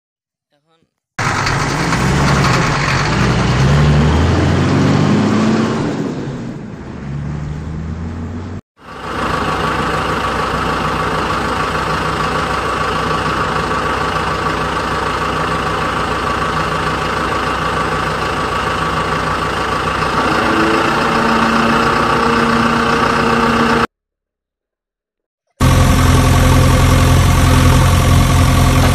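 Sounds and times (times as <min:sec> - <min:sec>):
truck engine idling: 0:01.2 - 0:04.3, 0:08.0 - 0:23.9, 0:25.6 - 0:28.9.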